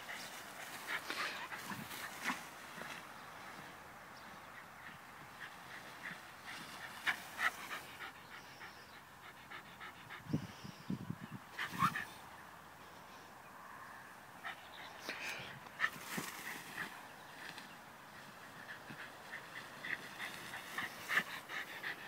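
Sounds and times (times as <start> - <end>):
tall grass rustling: 0.0 - 8.5, 15.7 - 22.0.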